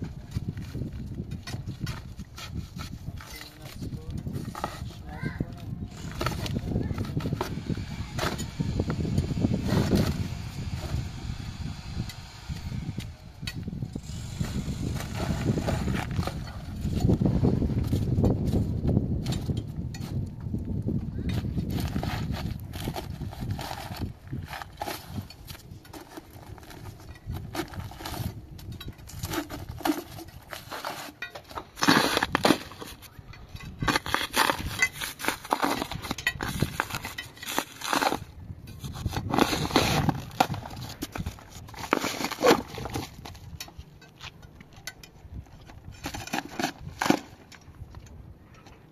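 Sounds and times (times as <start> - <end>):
rubble crunching: 13.5 - 48.9
steel bar chipping concrete: 22.5 - 38.3.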